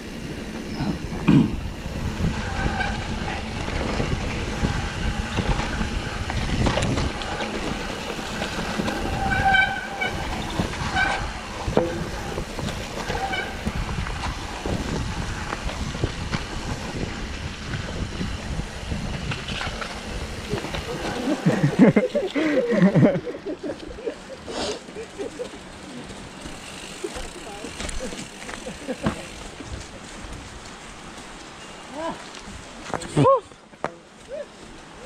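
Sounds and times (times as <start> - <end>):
wind rush on microphone: 0.0 - 22.0
bike rattling over bumps: 0.0 - 33.1
tyres on dirt: 0.0 - 35.0
high squeals: 2.1 - 3.5, 7.3 - 14.0.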